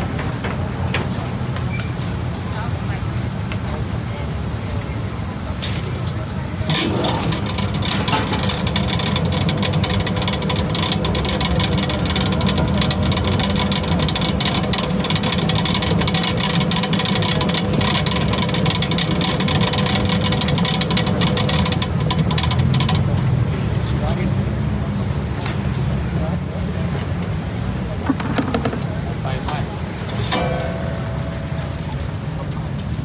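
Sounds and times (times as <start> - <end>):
dense rattle of spinning basket: 6.7 - 23.4
oil spinner motor hum and whir: 6.7 - 25.9.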